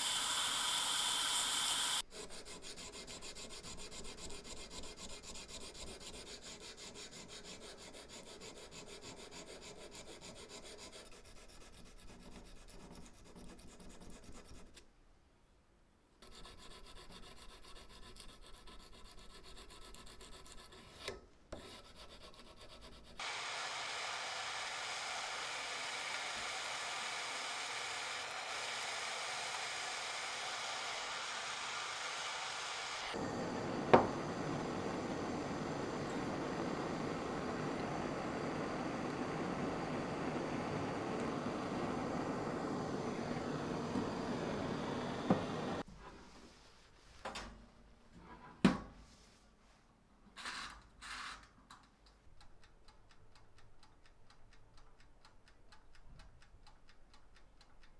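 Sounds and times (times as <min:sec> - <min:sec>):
gas torch hissing: 0:00.0 - 0:02.0, 0:23.2 - 0:45.8
file scraping knife blade: 0:02.1 - 0:14.8, 0:16.2 - 0:23.2.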